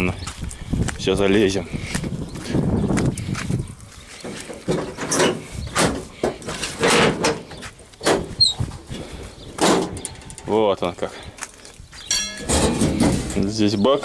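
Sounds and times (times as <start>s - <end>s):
steel cab knocking and creaking: 4.2s - 8.6s, 9.6s - 10.5s, 12.1s - 13.6s.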